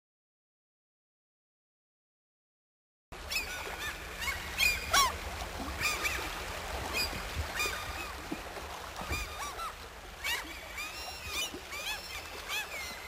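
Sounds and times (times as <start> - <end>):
waterbirds calling: 3.2 - 13.0.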